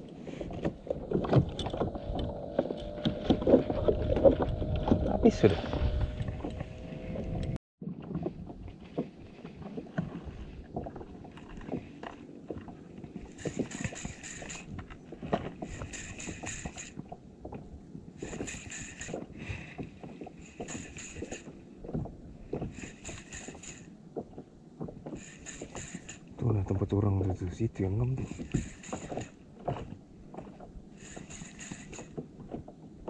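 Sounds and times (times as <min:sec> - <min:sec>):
water lapping against plastic hull: 0:00.0 - 0:33.0
fishing reel whirring: 0:13.3 - 0:14.8, 0:15.5 - 0:17.0, 0:18.2 - 0:19.7, 0:20.4 - 0:21.6, 0:22.7 - 0:23.9, 0:25.2 - 0:26.3, 0:28.2 - 0:29.4, 0:31.0 - 0:32.2.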